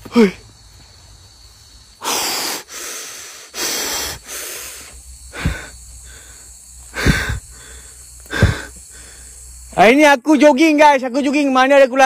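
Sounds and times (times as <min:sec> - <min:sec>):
man panting hard: 0:02.0 - 0:09.6.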